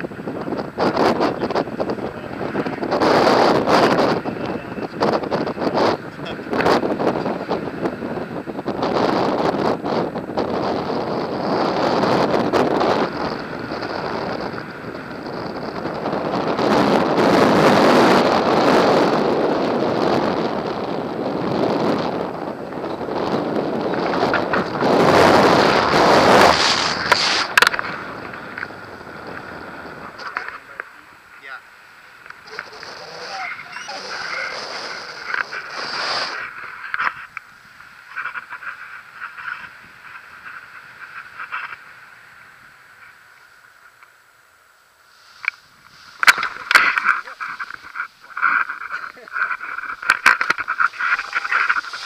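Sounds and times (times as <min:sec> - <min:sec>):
wind rushing over microphone: 0:00.0 - 0:43.2, 0:45.0 - 0:52.0
short crackles: 0:23.7 - 0:31.0, 0:32.2 - 0:41.9, 0:45.3 - 0:52.0.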